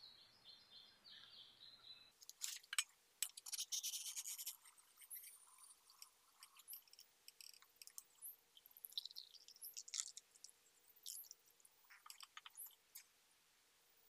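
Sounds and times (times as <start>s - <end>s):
faint bird chirps: 0.0s - 2.2s, 3.5s - 10.0s.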